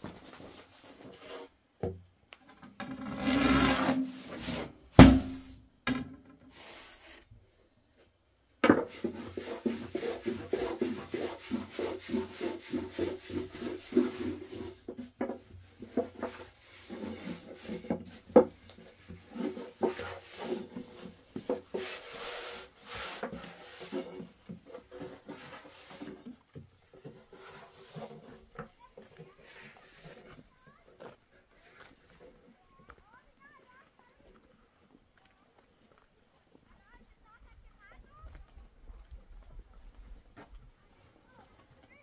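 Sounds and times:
rough rubbing and scraping: 0:00.0 - 0:01.6, 0:02.8 - 0:05.5, 0:08.8 - 0:32.4.

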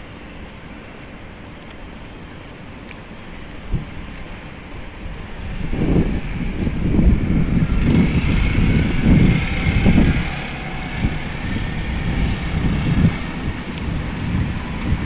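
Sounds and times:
street traffic: 0:00.0 - 0:15.0
wind buffeting the microphone: 0:03.3 - 0:15.0.

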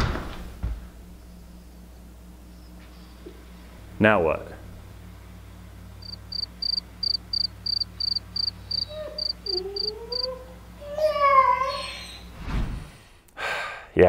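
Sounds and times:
cricket chirping: 0:06.0 - 0:10.3
puppy whining: 0:08.0 - 0:12.4.

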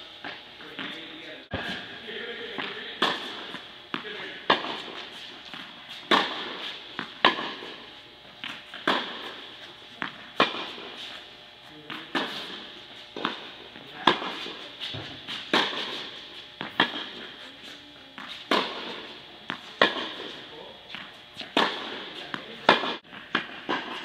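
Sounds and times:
racket striking tennis ball: 0:00.2 - 0:11.3, 0:11.9 - 0:24.0
tennis ball bouncing: 0:02.4 - 0:11.3, 0:11.9 - 0:24.0.

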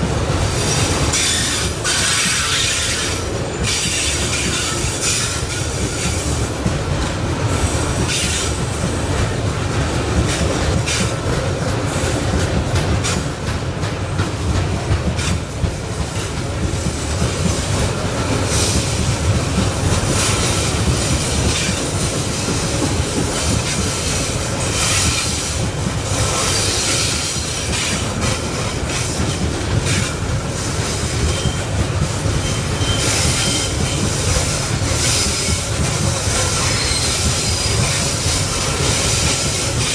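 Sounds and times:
train wheels rumbling on rails: 0:00.0 - 0:39.9
wheel squeals: 0:32.4 - 0:34.0.

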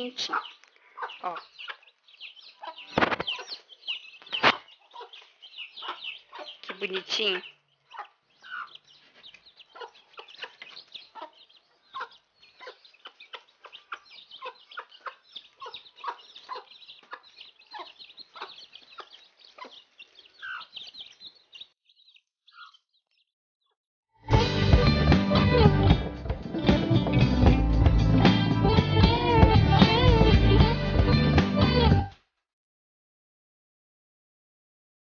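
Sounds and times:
chicks peeping: 0:00.0 - 0:23.2
hen clucking: 0:00.0 - 0:23.2
loud guitar music: 0:24.3 - 0:32.1.

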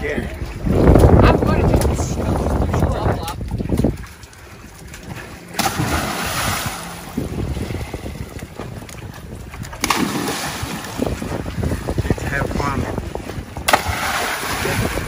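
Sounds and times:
wind noise on microphone: 0:00.0 - 0:15.0
person splashing into water: 0:05.5 - 0:07.2, 0:09.8 - 0:11.3, 0:13.6 - 0:15.0.

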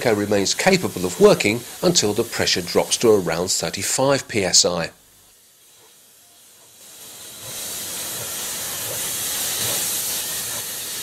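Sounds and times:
steam hissing: 0:00.0 - 0:11.0.

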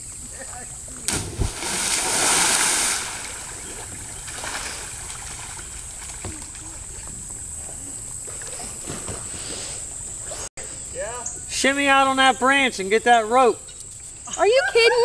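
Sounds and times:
faint moving water: 0:00.0 - 0:10.5.

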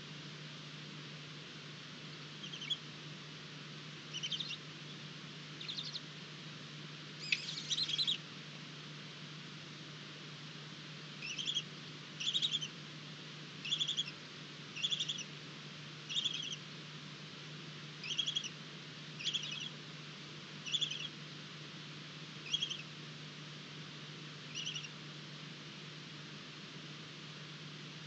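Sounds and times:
steady low hum: 0:00.0 - 0:28.0
owlets rattling calls: 0:02.4 - 0:02.8, 0:04.1 - 0:04.6, 0:05.6 - 0:06.0, 0:07.2 - 0:08.2, 0:11.2 - 0:11.6, 0:12.2 - 0:12.7, 0:13.7 - 0:14.1, 0:14.8 - 0:15.2, 0:16.1 - 0:16.6, 0:18.0 - 0:18.5, 0:19.2 - 0:19.7, 0:20.6 - 0:21.1, 0:22.5 - 0:22.8, 0:24.5 - 0:24.9.

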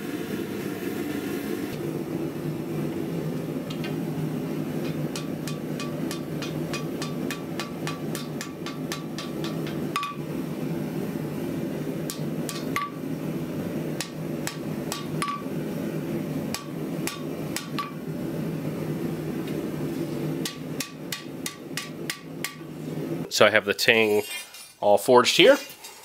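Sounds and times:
steady low hum: 0:00.0 - 0:24.7
hammer striking steel on anvil: 0:04.8 - 0:10.3, 0:12.0 - 0:13.0, 0:14.0 - 0:15.5, 0:16.5 - 0:18.0, 0:20.4 - 0:22.7.

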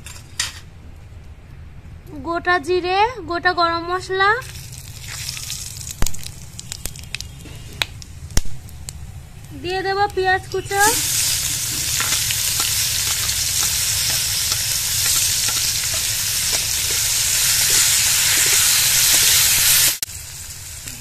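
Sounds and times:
onions sizzling in oil: 0:04.4 - 0:21.0
spatula scraping pan: 0:10.8 - 0:19.4.

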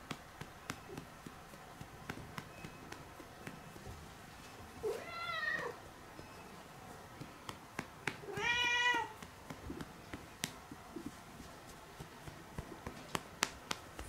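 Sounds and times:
light taps patting a cat: 0:00.0 - 0:04.1, 0:07.1 - 0:14.0
cat meowing: 0:04.8 - 0:05.8, 0:08.3 - 0:09.2.

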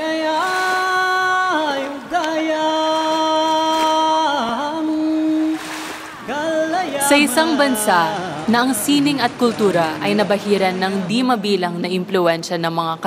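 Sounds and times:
person chanting melodic line: 0:06.8 - 0:09.4.

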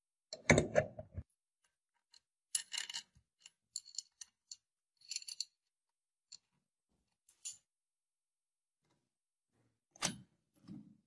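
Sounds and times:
metal parts knocking and clattering: 0:02.0 - 0:05.6
metallic clinks and scrapes: 0:02.1 - 0:05.7.

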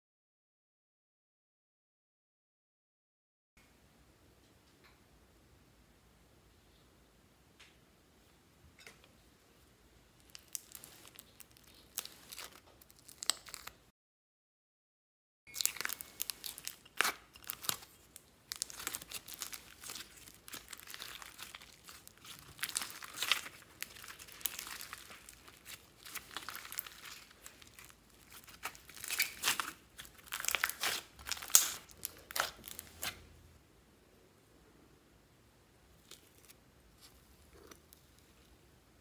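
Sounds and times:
slime squished by hand: 0:10.2 - 0:13.7, 0:15.5 - 0:33.2
sticky crackling and popping: 0:10.2 - 0:13.9, 0:15.5 - 0:33.3.

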